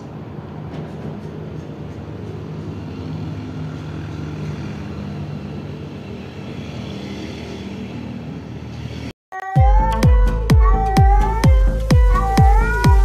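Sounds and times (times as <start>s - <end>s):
low rumbling hum: 9.6s - 13.0s.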